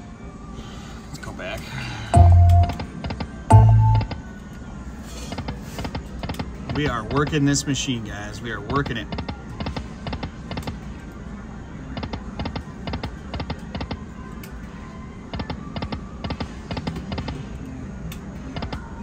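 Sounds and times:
casino background music: 2.0s - 19.0s
slot machine electronic clicking: 2.2s - 4.2s, 12.0s - 14.0s, 15.3s - 17.4s.

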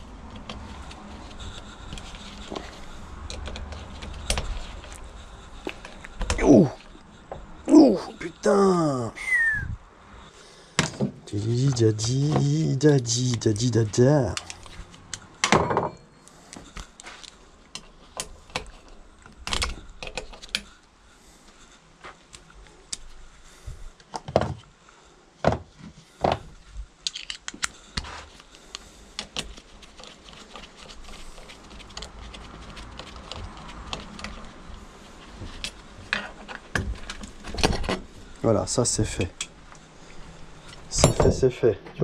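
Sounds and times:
tools and metal parts clinking: 27.0s - 27.8s, 40.6s - 41.4s.

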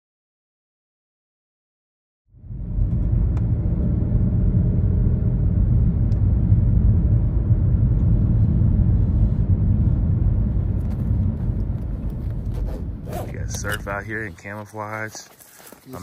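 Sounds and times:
vehicle rumbling: 2.3s - 16.0s.

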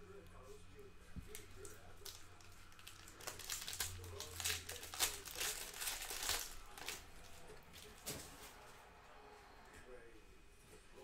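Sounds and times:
foil wrapper crackling: 1.3s - 8.0s.

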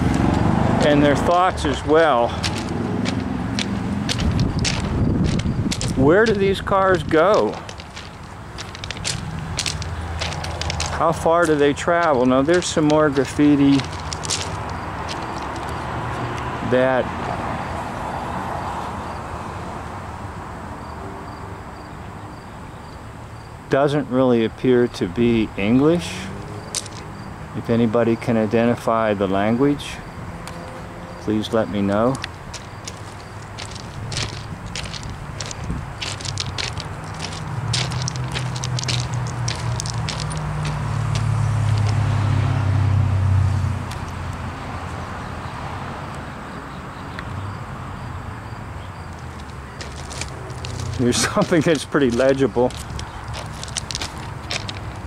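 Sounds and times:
vehicle engine running: 0.0s - 15.9s, 32.2s - 42.1s
steady rush of noise: 0.0s - 17.7s, 32.2s - 42.0s
cricket chirping: 20.6s - 23.7s, 25.5s - 27.6s, 30.0s - 42.0s, 44.7s - 51.5s.

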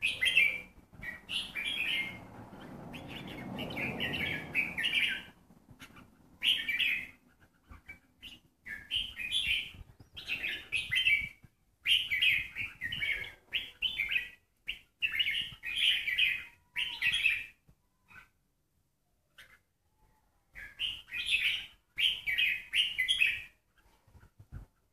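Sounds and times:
songbirds chirping: 0.0s - 24.9s.

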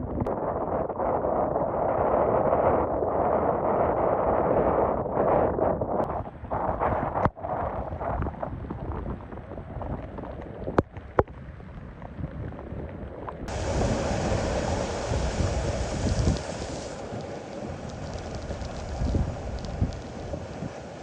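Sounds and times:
strong wind buffeting microphone: 0.0s - 21.0s
waves breaking on shore: 13.5s - 21.0s.

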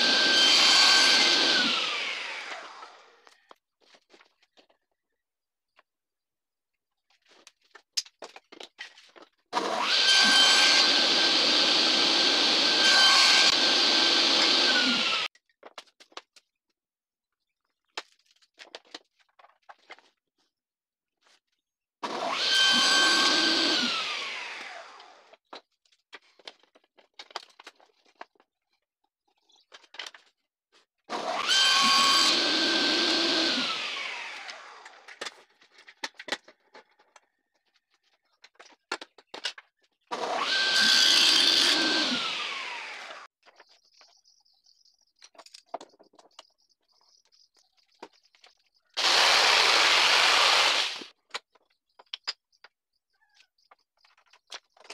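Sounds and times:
table saw whining: 0.0s - 3.3s, 9.6s - 15.3s, 22.0s - 25.3s, 31.1s - 35.2s, 40.1s - 43.3s, 49.0s - 51.1s.

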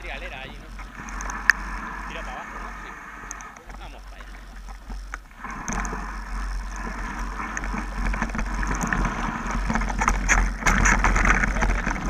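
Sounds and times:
bike rattling clicks: 0.0s - 1.7s, 7.4s - 12.0s
wind rumbling on microphone: 0.0s - 12.0s
tyres crunching over loose dirt: 7.4s - 12.0s.

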